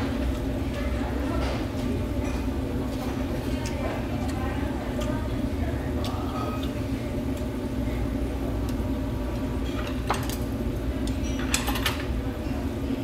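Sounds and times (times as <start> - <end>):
tableware clinking: 6.3 - 6.7, 11.2 - 12.1.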